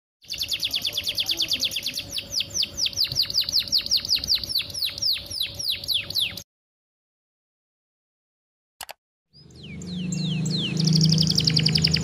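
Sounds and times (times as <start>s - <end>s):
canary singing a trill: 0.2s - 6.4s, 9.3s - 12.0s.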